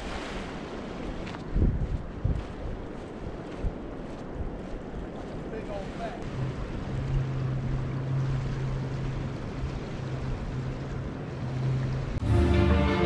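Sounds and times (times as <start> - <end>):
gentle surf: 0.0 - 13.0
wind: 0.0 - 13.0
low hum: 6.2 - 13.0
music: 12.2 - 13.0.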